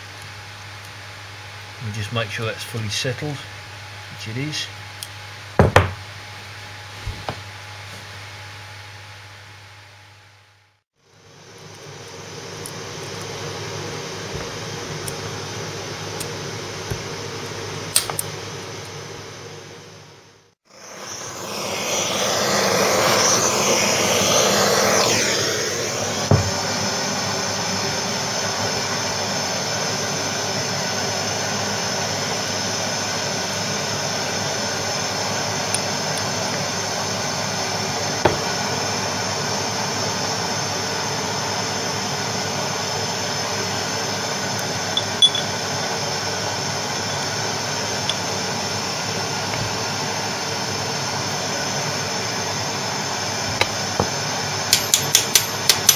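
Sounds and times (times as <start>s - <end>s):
blowtorch flame hissing: 11.0s - 19.4s, 20.6s - 55.9s.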